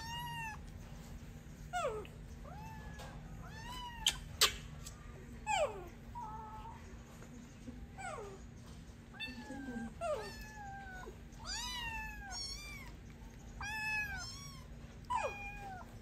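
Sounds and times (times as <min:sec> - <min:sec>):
kitten meowing: 0:00.0 - 0:00.6, 0:01.7 - 0:04.6, 0:09.2 - 0:13.0, 0:13.6 - 0:15.9.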